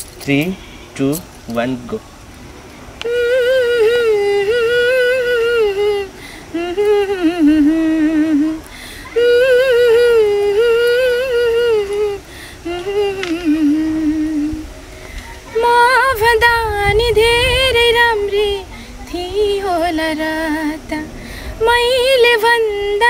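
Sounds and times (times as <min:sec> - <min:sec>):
woman singing unaccompanied: 0:03.0 - 0:23.0.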